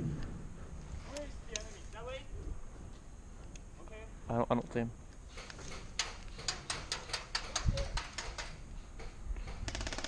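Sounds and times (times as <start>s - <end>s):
airsoft rifle shots: 9.6s - 10.0s.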